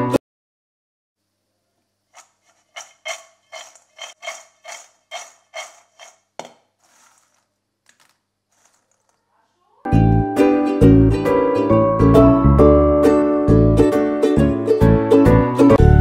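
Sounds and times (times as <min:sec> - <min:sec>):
pasta rattling in steel bowl: 0:02.1 - 0:09.2
hand stirring dry pieces: 0:02.1 - 0:09.3.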